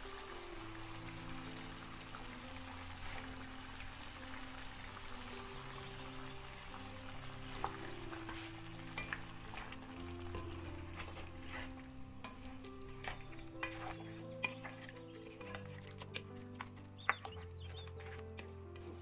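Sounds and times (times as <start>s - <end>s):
food sizzling in a pot: 0.0s - 17.2s
background music with held notes: 0.0s - 19.0s
wooden spoon scraping a pot: 7.5s - 19.0s.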